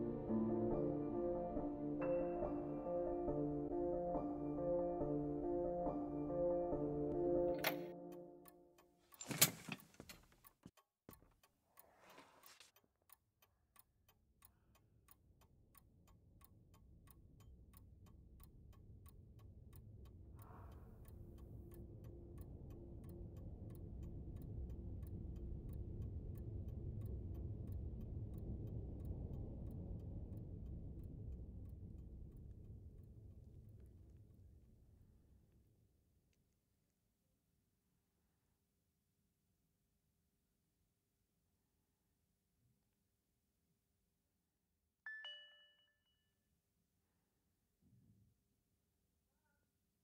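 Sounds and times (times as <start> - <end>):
clock ticking: 10.4 - 34.2
low rumble: 20.5 - 34.2.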